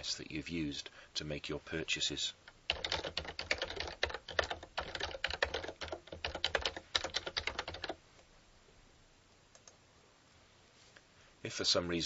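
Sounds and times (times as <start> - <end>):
computer keyboard typing: 2.7 - 8.0.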